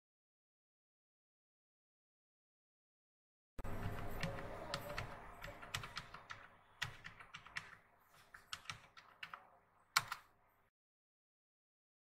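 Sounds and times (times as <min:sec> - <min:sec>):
keyboard key clicks: 0:03.8 - 0:10.3.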